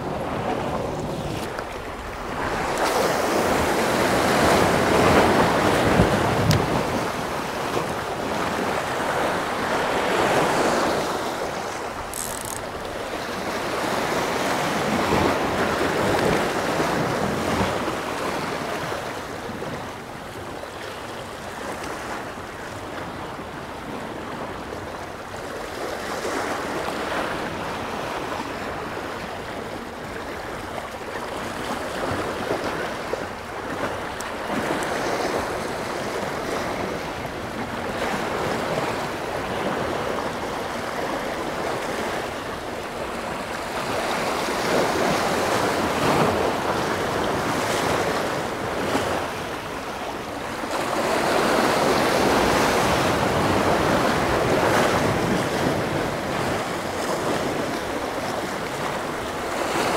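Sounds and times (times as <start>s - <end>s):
wind on microphone: 0.0s - 19.9s.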